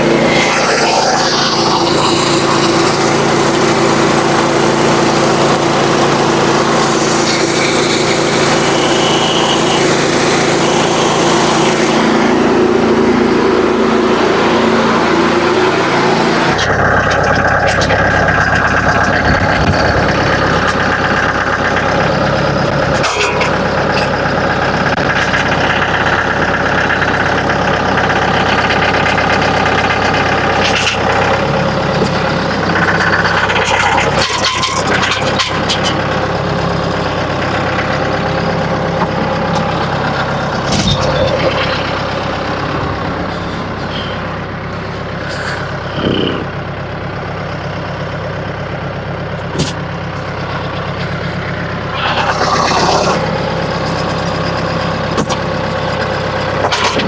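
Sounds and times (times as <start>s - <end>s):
tractor diesel engine running: 0.0s - 57.0s
knocks and clunks: 40.6s - 42.1s, 49.5s - 49.8s.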